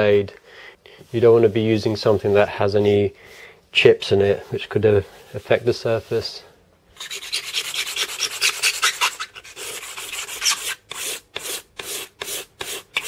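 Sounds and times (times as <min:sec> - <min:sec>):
razor blade scraping wood: 0:07.0 - 0:13.0.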